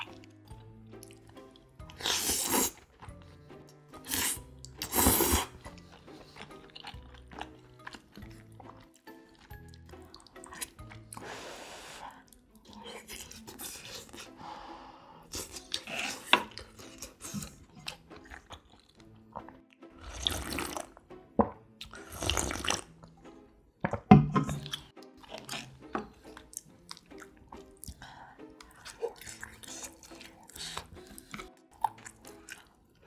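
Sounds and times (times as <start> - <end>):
wet chewing clicks: 0.9 - 11.2, 15.3 - 20.9, 23.8 - 33.0
noisy slurping from a bowl: 1.1 - 3.2, 4.0 - 14.4, 15.3 - 21.0, 21.8 - 23.0, 24.4 - 27.9, 28.6 - 32.7.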